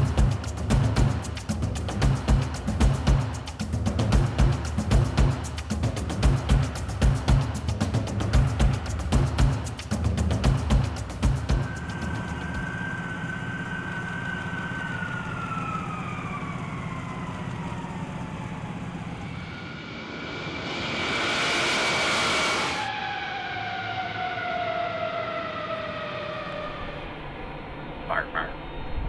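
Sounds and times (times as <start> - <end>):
jet engines whining down: 0.0 - 29.0
rushing jet noise: 17.9 - 27.6.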